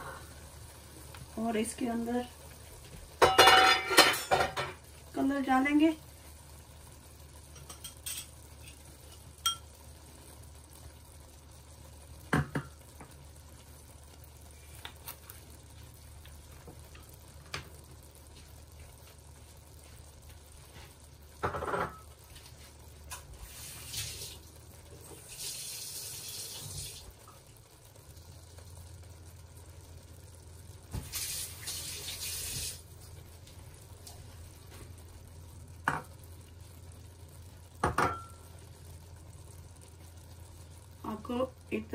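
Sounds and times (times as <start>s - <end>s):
dishes and utensils clinking: 3.2s - 4.8s, 7.5s - 8.7s, 9.4s - 9.7s
short hiss: 31.0s - 32.8s.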